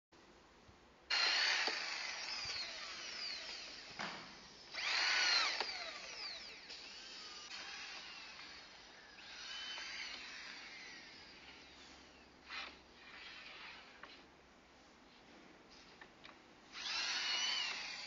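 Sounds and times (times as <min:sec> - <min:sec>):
drilling machine boring holes: 0:01.1 - 0:11.8, 0:12.4 - 0:14.0, 0:16.7 - 0:18.0.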